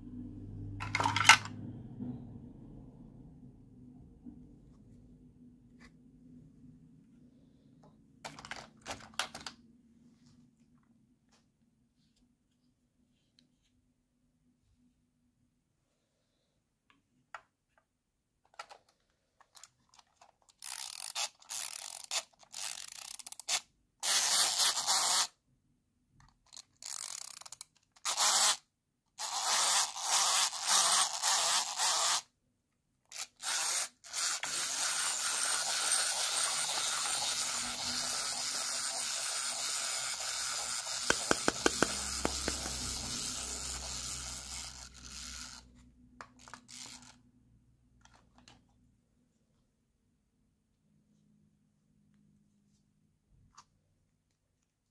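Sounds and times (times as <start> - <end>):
wind-up key ratcheting: 20.5 - 25.3, 26.5 - 28.5, 33.1 - 45.6, 46.4 - 47.2
clockwork motor whirring: 33.1 - 45.6.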